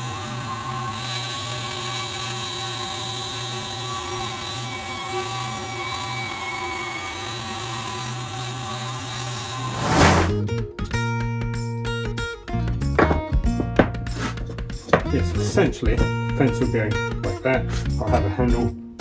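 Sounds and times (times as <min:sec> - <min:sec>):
bandsaw cutting plywood: 0:00.0 - 0:10.4
loud rush of noise: 0:09.7 - 0:10.4
music: 0:10.0 - 0:19.0.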